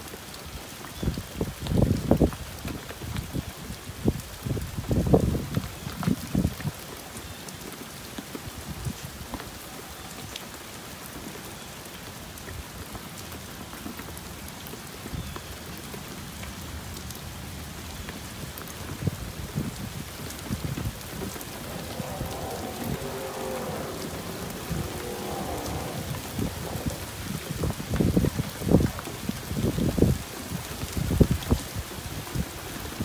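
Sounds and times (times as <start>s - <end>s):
steady rain hiss: 0.0s - 33.0s
raindrops tapping: 18.0s - 33.0s
low rumble: 20.5s - 28.4s.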